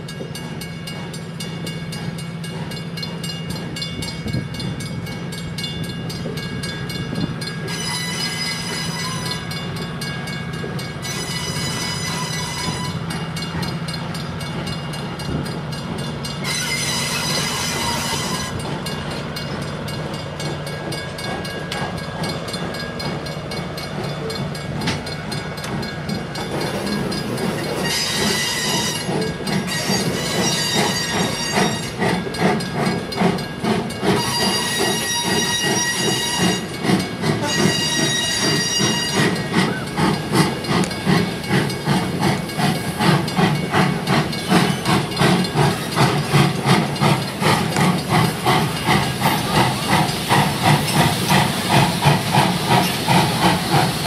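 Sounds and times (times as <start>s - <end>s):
steam locomotive chuffing: 0.0s - 54.0s
train rolling past: 0.0s - 54.0s
high wheel squeal: 7.6s - 9.6s, 11.0s - 13.8s, 16.4s - 18.8s, 26.4s - 32.2s, 34.0s - 41.9s, 42.8s - 54.0s.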